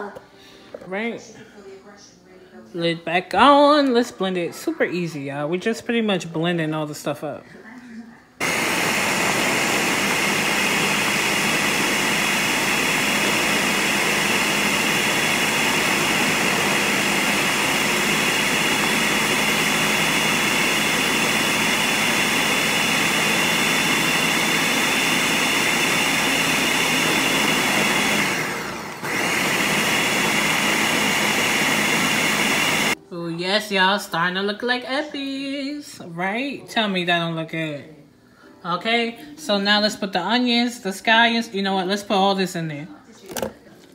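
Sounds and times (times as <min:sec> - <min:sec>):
blender running at high speed: 0:08.4 - 0:33.0.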